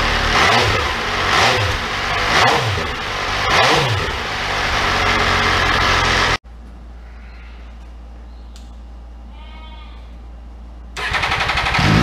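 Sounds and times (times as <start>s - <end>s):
motorcycle engine idling and revving: 0.0s - 6.4s, 11.0s - 12.0s.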